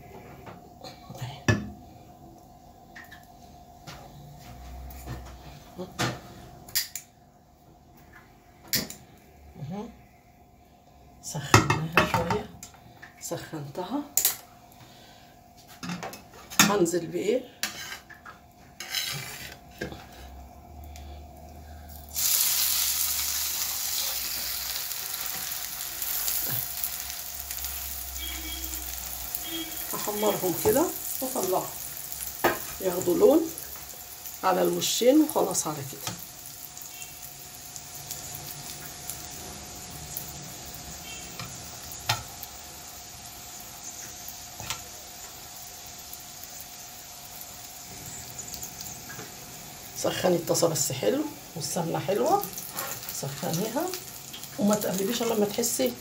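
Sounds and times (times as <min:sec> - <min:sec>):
pastry sizzling in hot fat: 0:18.7 - 0:56.0.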